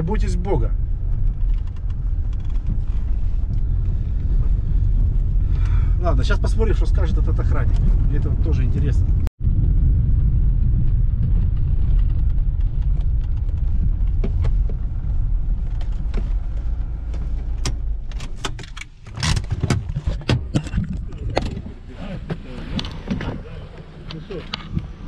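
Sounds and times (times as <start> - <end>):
car engine and tyres rumbling: 0.0 - 25.0
sharp clicks and knocks: 1.1 - 4.0, 11.4 - 25.0.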